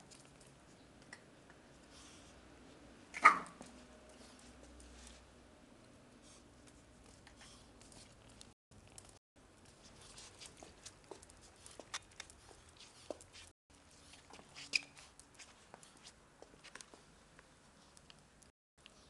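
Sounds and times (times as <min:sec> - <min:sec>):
puppy claws ticking on tiles: 0:06.6 - 0:13.5.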